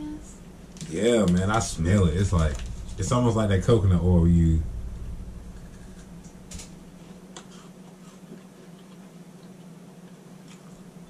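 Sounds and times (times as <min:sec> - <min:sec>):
steady low hum: 0:00.0 - 0:11.0
people chewing wafer bar: 0:07.4 - 0:11.0.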